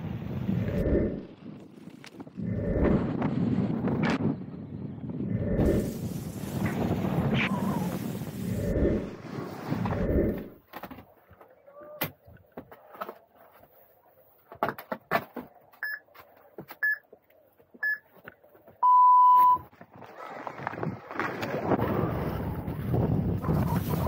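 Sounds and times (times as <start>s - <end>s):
wind on microphone: 0.0s - 10.6s, 20.5s - 24.0s
long low start beep: 18.8s - 19.6s
short high beeps: 18.8s - 19.6s.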